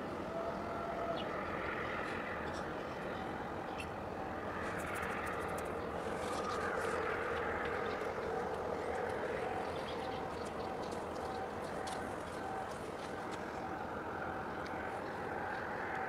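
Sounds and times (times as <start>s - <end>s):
waterfront background noise: 0.0s - 16.0s
distant engine rumble: 0.2s - 16.0s
faint chirps and ticks: 4.6s - 13.8s.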